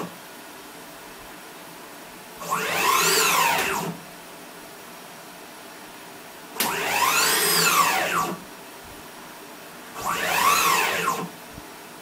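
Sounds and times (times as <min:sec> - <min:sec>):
stepper motor whine: 0:02.4 - 0:04.0, 0:06.6 - 0:08.4, 0:10.0 - 0:11.3.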